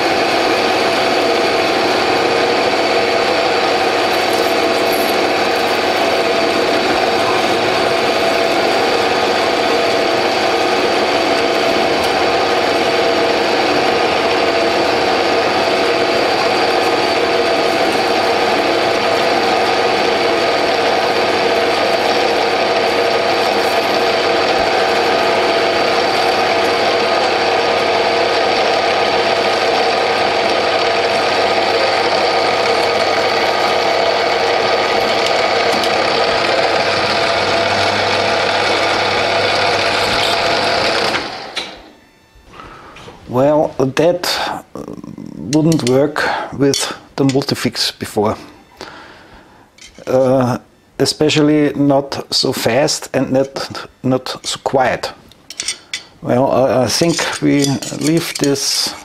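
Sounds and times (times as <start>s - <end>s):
metal lathe whine: 0.0s - 44.1s, 55.5s - 59.0s
parting blade cutting steel bar: 56.9s - 59.0s.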